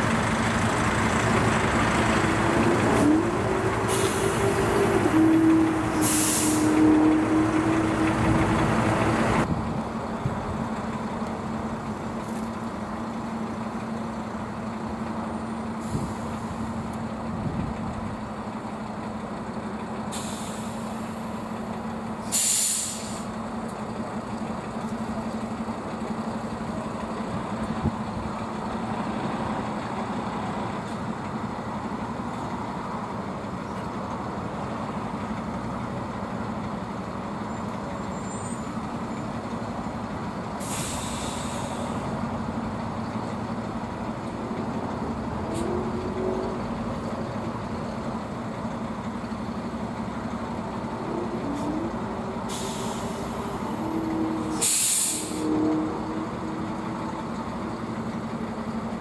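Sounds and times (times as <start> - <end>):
truck diesel engines running: 0.0 - 59.0
air brake hisses: 3.8 - 4.9, 6.0 - 6.8, 15.8 - 16.7, 20.1 - 21.2, 22.2 - 23.4, 40.6 - 42.1, 52.5 - 55.6.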